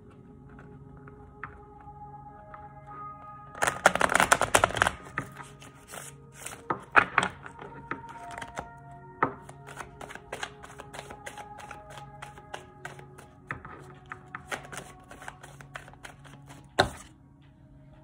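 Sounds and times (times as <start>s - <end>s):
cards being riffle-shuffled: 3.6s - 7.4s, 8.1s - 8.7s, 9.4s - 17.1s
cards shuffled overhand: 3.6s - 7.4s, 8.0s - 8.7s, 9.4s - 17.1s
card taps: 3.6s - 17.1s.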